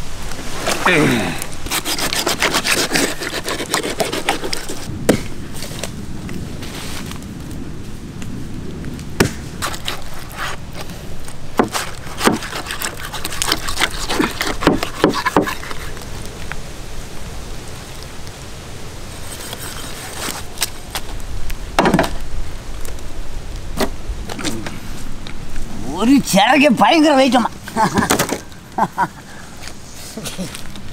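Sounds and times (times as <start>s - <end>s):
knife hacking through fish: 11.6s - 15.6s.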